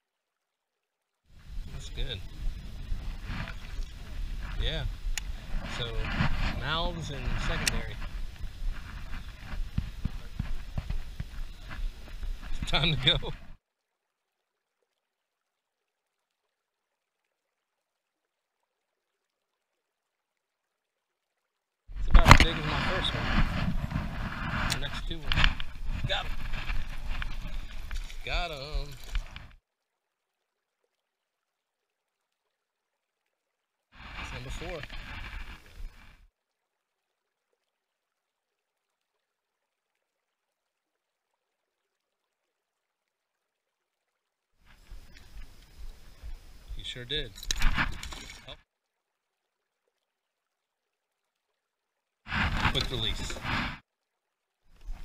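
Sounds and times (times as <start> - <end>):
faint hiss: 1.3 - 13.6, 21.9 - 29.6, 34.0 - 36.3, 44.6 - 48.6, 52.3 - 53.8.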